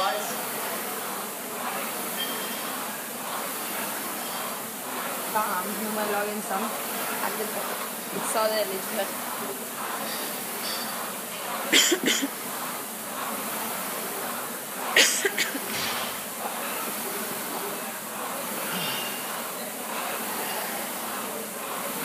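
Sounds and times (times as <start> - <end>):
rowing machine flywheel whirring: 0.0 - 22.0.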